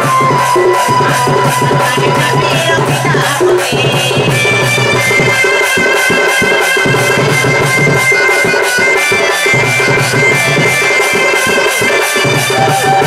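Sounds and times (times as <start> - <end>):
fast steady drum beat: 0.0 - 13.0
wind instrument long notes: 0.0 - 13.0.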